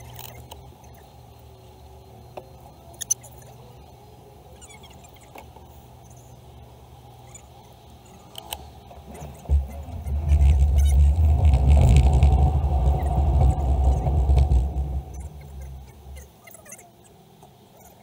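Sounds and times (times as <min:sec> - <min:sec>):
car engine idling hum: 0:00.0 - 0:18.0
faint clicks: 0:07.9 - 0:16.3.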